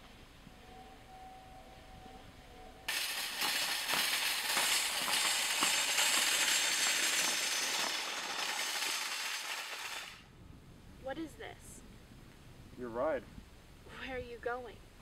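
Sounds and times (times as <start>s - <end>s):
wire shopping cart rattling: 2.9s - 10.2s.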